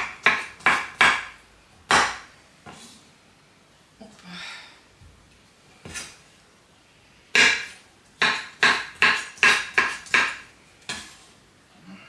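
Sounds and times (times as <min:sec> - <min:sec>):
knife chopping on wooden board: 0:00.0 - 0:02.3, 0:07.3 - 0:11.1.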